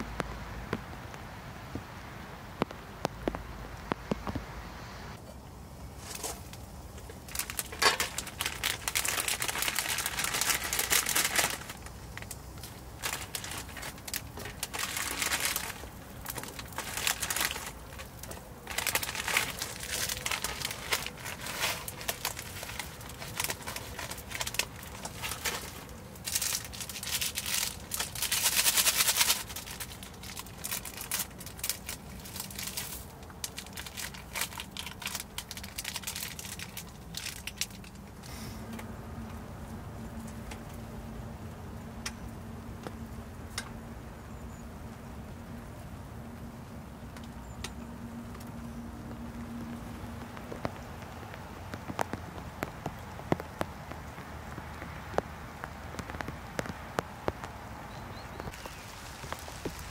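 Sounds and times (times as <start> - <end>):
plastic packets crinkling and tearing: 6.0 - 38.8, 47.2 - 59.9
water boiling in a pot: 58.5 - 59.9.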